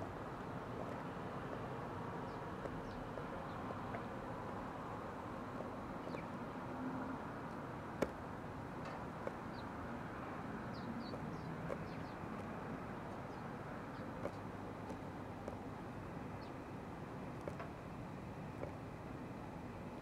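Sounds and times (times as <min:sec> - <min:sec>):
small birds chirping: 0:02.3 - 0:03.7, 0:05.6 - 0:06.5, 0:09.2 - 0:09.8, 0:10.6 - 0:15.6, 0:16.4 - 0:16.6.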